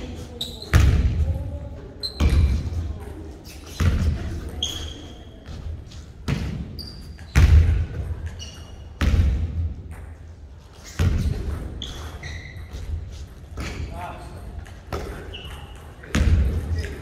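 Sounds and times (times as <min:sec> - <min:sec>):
sneaker squeaks: 0:00.0 - 0:17.0
basketball bouncing on wooden floor: 0:06.3 - 0:10.2, 0:16.0 - 0:16.9.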